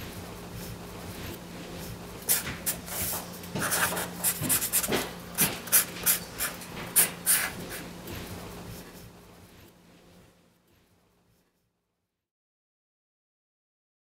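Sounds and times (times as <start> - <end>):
marker scratching on paper: 2.3 - 7.9.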